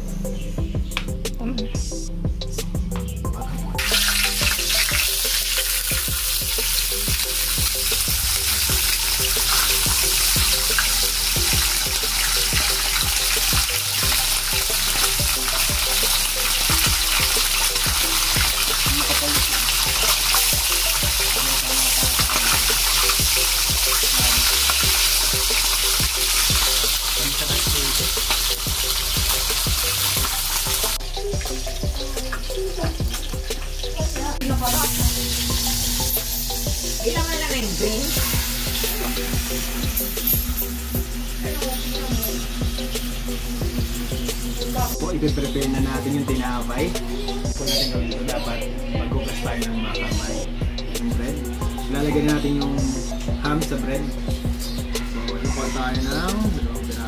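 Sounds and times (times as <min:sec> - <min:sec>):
ham sizzling in frying pan: 0:03.8 - 0:31.5, 0:34.6 - 0:45.0.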